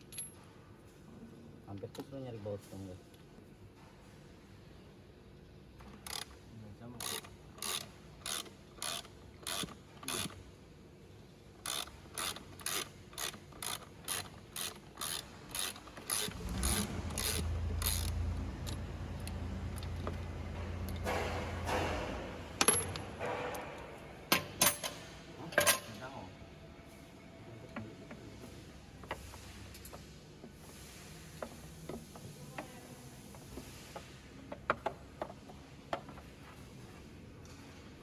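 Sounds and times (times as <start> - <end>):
ratchet wrench clicking: 6.0 - 6.4, 7.0 - 10.4, 11.6 - 20.2.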